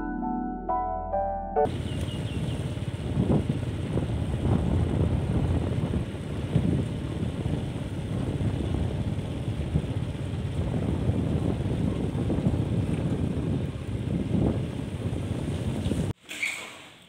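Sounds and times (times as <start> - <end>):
vehicle road noise on dirt road: 1.7 - 16.2
wind buffeting microphone: 1.7 - 16.2.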